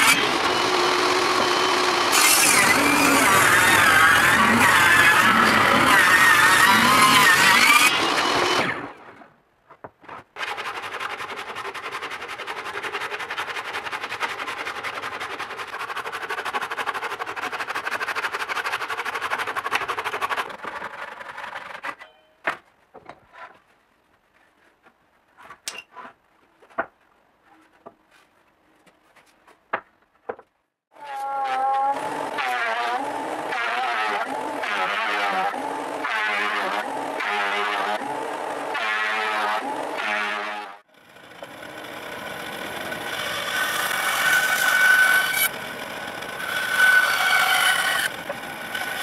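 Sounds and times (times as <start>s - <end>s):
power saw cutting wood: 0.0s - 9.2s, 10.4s - 22.0s, 31.0s - 49.0s.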